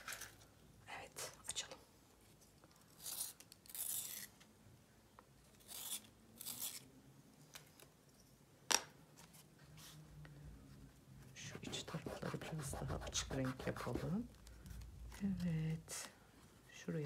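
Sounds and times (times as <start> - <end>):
colour stick scratching paper: 11.4 - 14.3.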